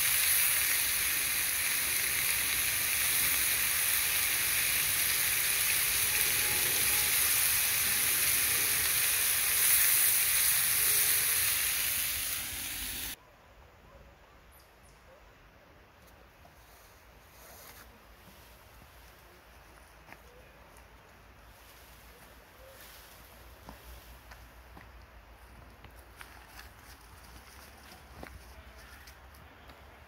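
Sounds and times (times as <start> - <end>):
meat sizzling on stone: 0.0 - 13.2.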